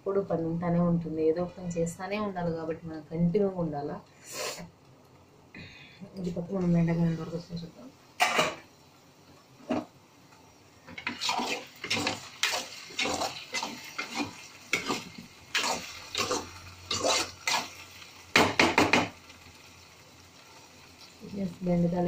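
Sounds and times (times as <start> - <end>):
metal spatula scraping pan: 10.9 - 17.8.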